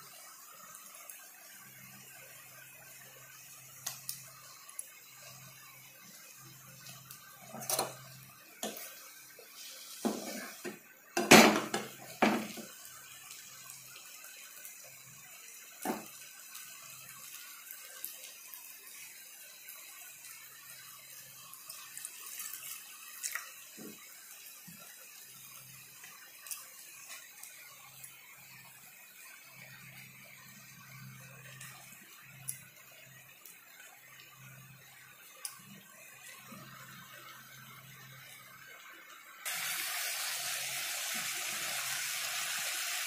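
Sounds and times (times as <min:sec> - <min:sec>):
curry sizzling in a frying pan: 0:00.0 - 0:43.0
metal spatula scraping a pan: 0:09.5 - 0:10.8.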